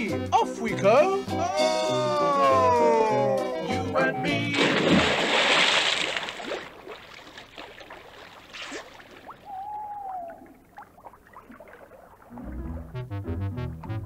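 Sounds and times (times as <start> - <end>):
cartoon water sloshing: 3.8 - 13.3
whistle-like tone: 9.4 - 10.4.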